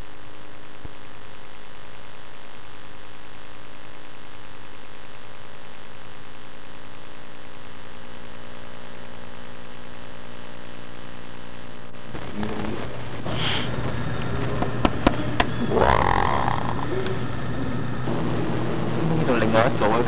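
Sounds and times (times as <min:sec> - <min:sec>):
electrical hum: 0:00.0 - 0:20.0
hiss: 0:13.3 - 0:13.7.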